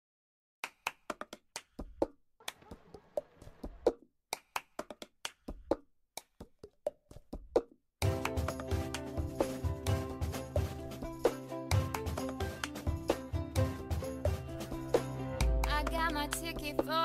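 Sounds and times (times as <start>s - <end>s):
hand claps and taps: 0.6s - 9.1s, 11.8s - 13.2s
backing music: 8.0s - 17.0s.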